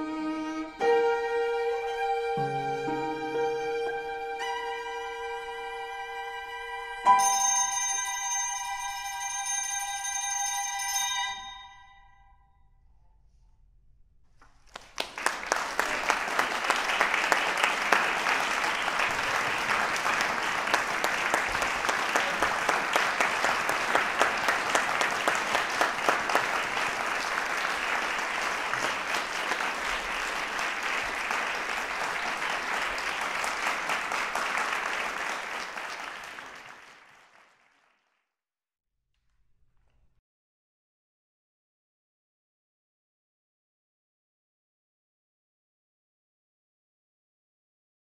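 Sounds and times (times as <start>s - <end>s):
audience applauding: 14.6s - 38.2s.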